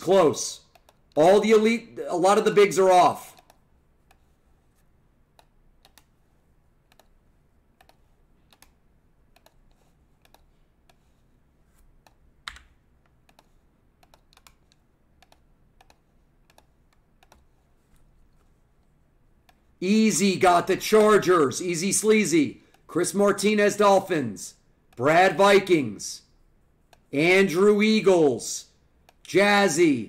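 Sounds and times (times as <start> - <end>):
computer keyboard clicking: 0.7 - 1.2, 5.3 - 6.1, 6.9 - 7.2, 7.8 - 11.0, 12.0 - 17.5.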